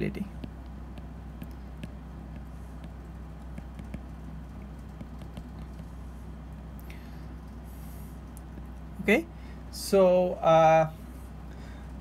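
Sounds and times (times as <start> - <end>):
steady low hum: 0.0 - 12.0
stylus tapping on glass screen: 0.4 - 5.9.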